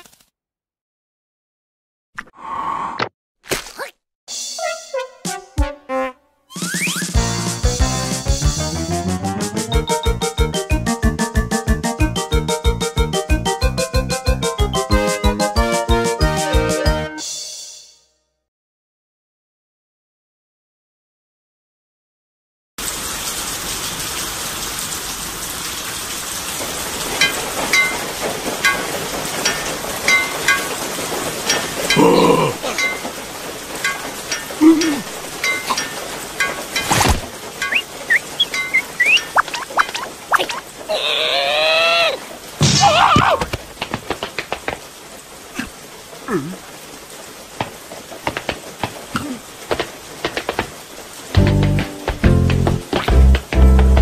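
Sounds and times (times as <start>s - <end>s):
steady rain hiss: 22.8s - 54.0s
water drops plinking: 27.2s - 30.8s, 31.5s - 33.2s, 33.8s - 40.6s
swooping cartoon vocal sound: 38.1s - 42.2s.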